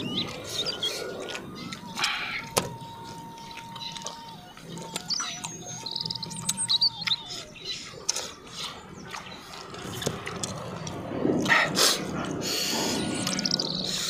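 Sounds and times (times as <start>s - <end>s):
birds chirping and trilling: 0.0s - 14.0s
chewing clicks: 0.0s - 14.0s.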